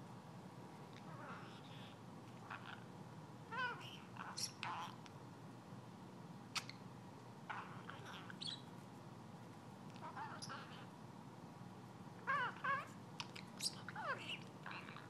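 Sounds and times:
budgerigar chirping and warbling: 3.5 - 5.0, 7.5 - 8.7, 10.0 - 10.9, 12.2 - 15.0.

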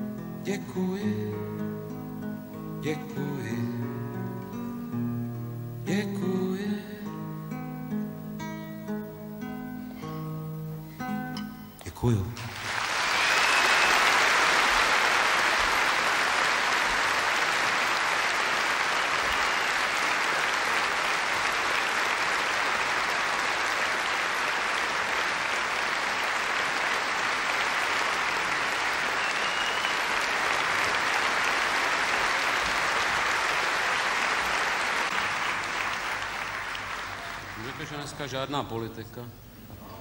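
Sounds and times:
audience applauding: 12.4 - 38.4.

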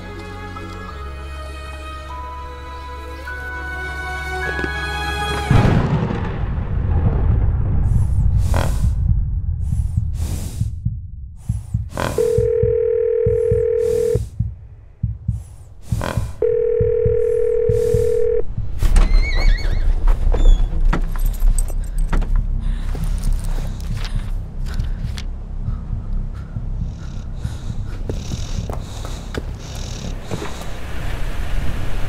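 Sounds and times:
low rumble: 5.5 - 32.0
telephone ringback beeps: 12.2 - 14.2, 16.4 - 18.4.

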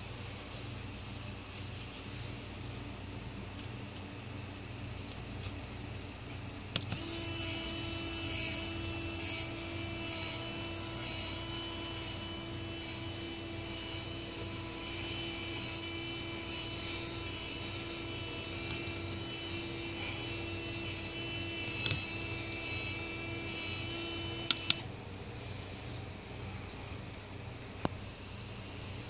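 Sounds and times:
electric winch motor whining: 6.9 - 24.8.

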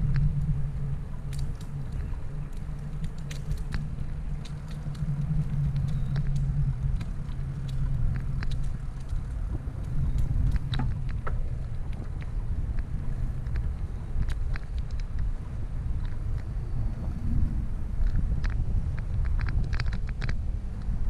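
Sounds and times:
bicycle clicks and rattles: 0.0 - 21.0
bicycle rolling over paving: 0.0 - 21.0.

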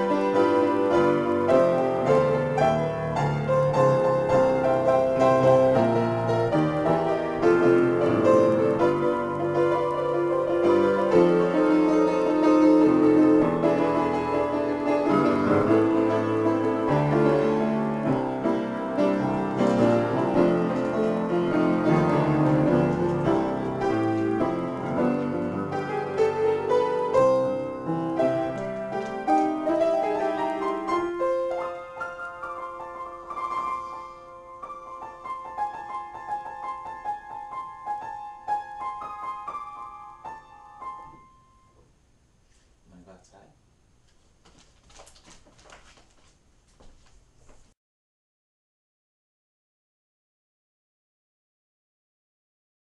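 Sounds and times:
piano improvisation: 0.0 - 42.0.

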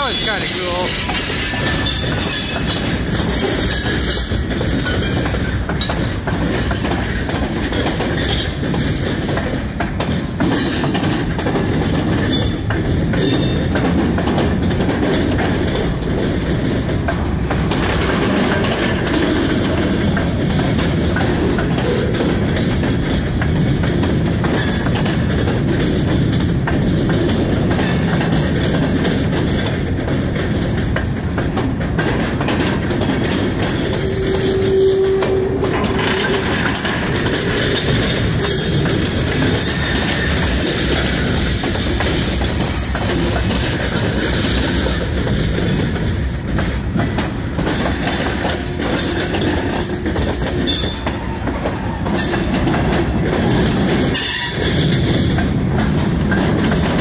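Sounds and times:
train wheels rumbling on rail: 0.0 - 57.0
clicks over rail joints: 0.3 - 34.1.

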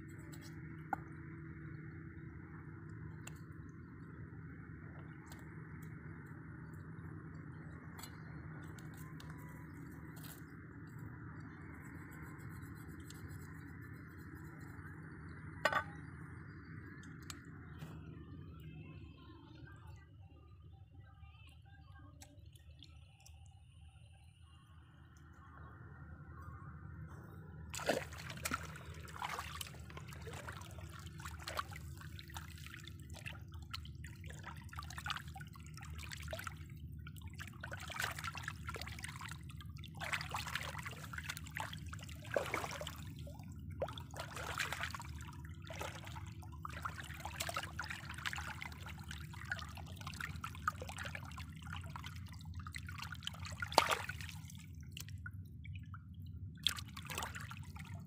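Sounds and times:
stream trickling: 0.0 - 17.8, 27.6 - 58.0
hands splashing in water: 27.7 - 35.4, 37.3 - 52.2, 52.8 - 55.1, 56.6 - 57.9.

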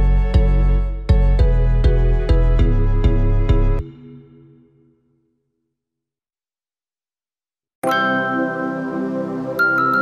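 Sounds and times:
instrumental background music: 0.0 - 5.2, 7.8 - 10.0.

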